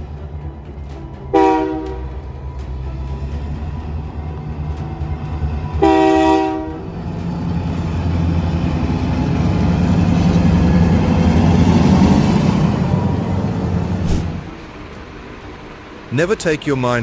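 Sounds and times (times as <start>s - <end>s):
locomotive engines rumbling: 0.0s - 17.0s
locomotive air horn blast: 1.3s - 2.2s, 5.8s - 6.9s.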